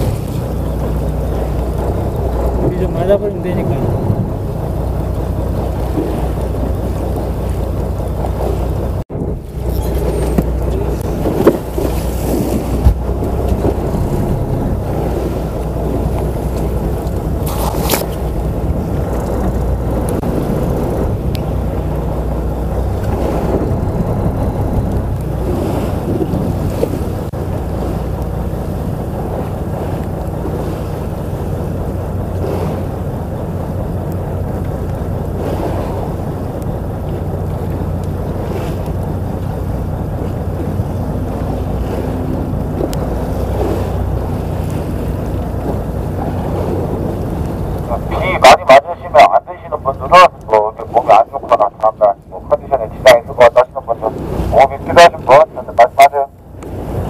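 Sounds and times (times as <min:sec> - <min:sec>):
steady low drone: 0:00.0 - 0:57.0
waves against hull: 0:00.0 - 0:57.0
wind buffeting microphone: 0:00.0 - 0:57.0.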